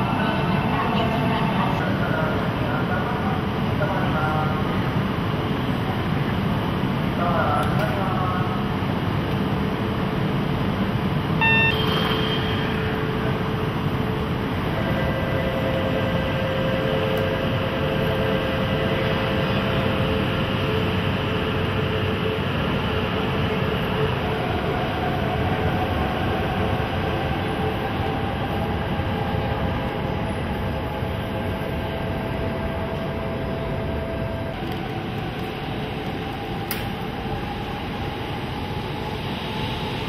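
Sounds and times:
train rolling rumble: 0.0s - 40.0s
short beep: 11.4s - 12.9s.

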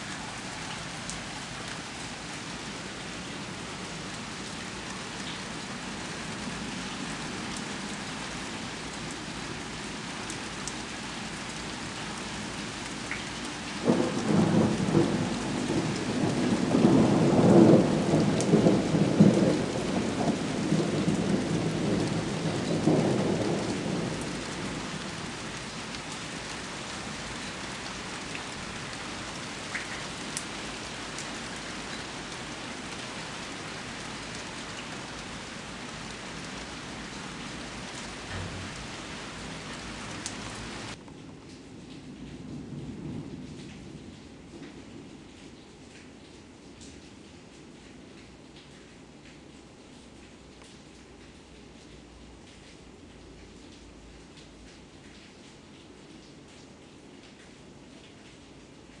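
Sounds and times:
steady rain hissing: 0.0s - 59.0s
rolling thunder rumble: 13.8s - 25.2s, 37.6s - 41.0s.

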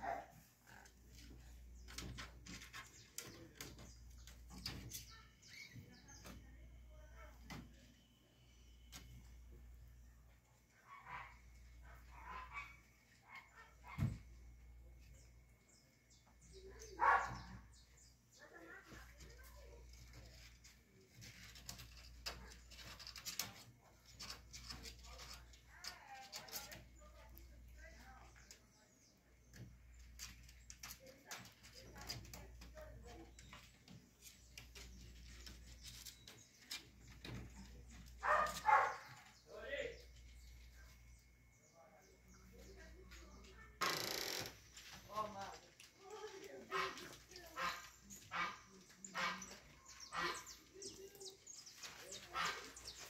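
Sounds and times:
kittens scratching in litter: 19.0s - 28.5s, 29.6s - 39.2s.

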